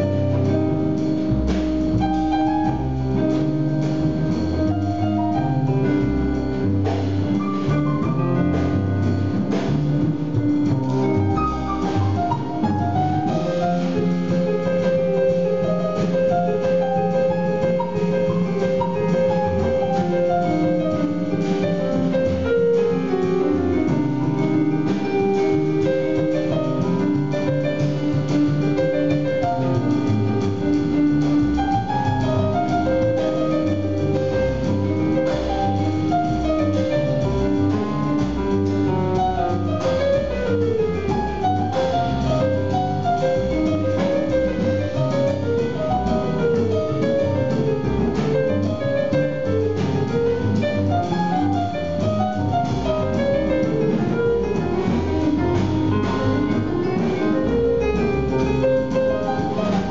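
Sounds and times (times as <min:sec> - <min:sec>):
acoustic piano: 0:00.0 - 0:59.9
upright double bass: 0:00.0 - 0:59.9
drum cymbals: 0:00.2 - 0:40.8.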